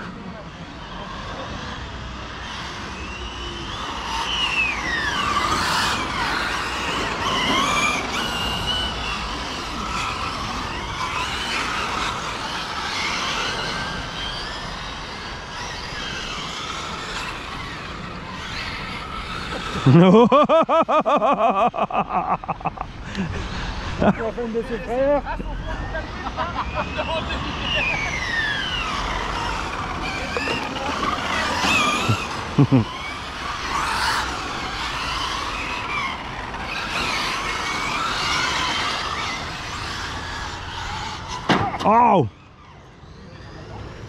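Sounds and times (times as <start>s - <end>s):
rapidly pulsing buzz: 0.0s - 20.4s, 21.0s - 41.5s
electric motor whine: 0.0s - 21.0s, 21.8s - 41.8s
tyres on gravel: 24.1s - 41.8s.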